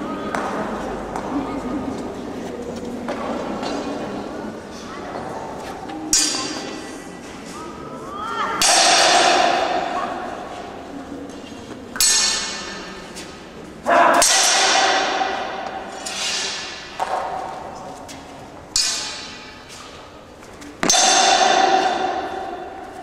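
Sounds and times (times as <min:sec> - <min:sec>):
swords clashing and ringing: 0:06.1 - 0:06.8, 0:08.6 - 0:09.9, 0:12.0 - 0:13.0, 0:14.2 - 0:17.1, 0:18.8 - 0:19.9, 0:20.8 - 0:22.7.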